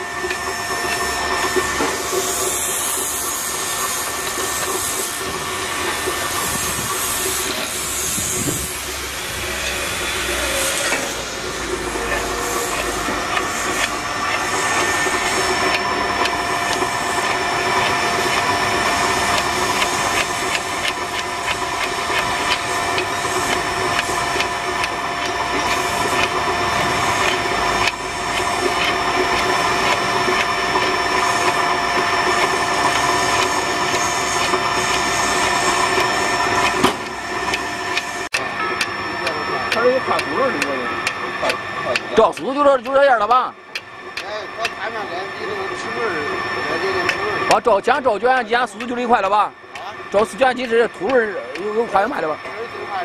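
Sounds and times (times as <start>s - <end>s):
electric winch motor whining: 0.0s - 53.0s
wire rope clicking on drum: 11.7s - 31.7s.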